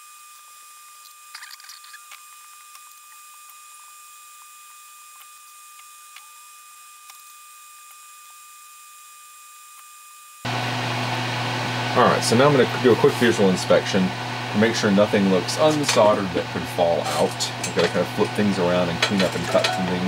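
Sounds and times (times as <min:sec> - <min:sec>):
wires and parts handled: 0:01.0 - 0:06.4.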